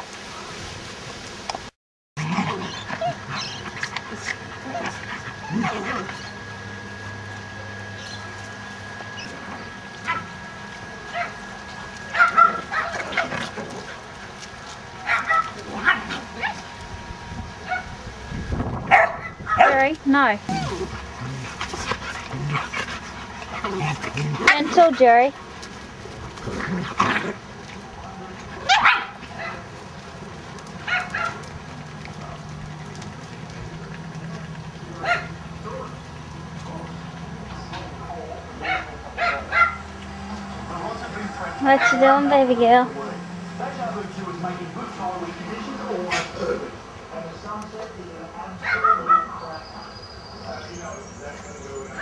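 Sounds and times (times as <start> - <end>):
dogs yipping and barking: 2.2 - 14.2, 15.0 - 16.8, 17.6 - 18.0, 18.8 - 19.9, 28.6 - 29.7, 30.7 - 34.0, 35.0 - 36.2, 38.6 - 42.4, 48.6 - 50.3
dog play barks: 12.1 - 13.9, 15.0 - 16.7, 18.9 - 19.9, 28.6 - 29.7, 30.8 - 31.5, 38.6 - 42.6.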